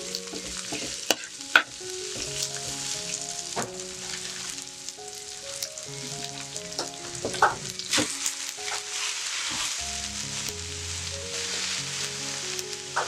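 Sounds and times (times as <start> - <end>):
food sizzling in a pan: 0.0 - 13.0
soft background music: 0.0 - 13.0
utensil knocking on pan: 0.3 - 2.3.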